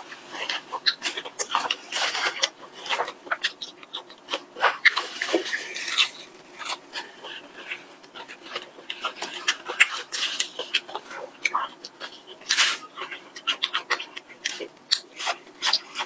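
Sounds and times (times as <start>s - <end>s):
crunching fried chicken: 0.0s - 16.0s.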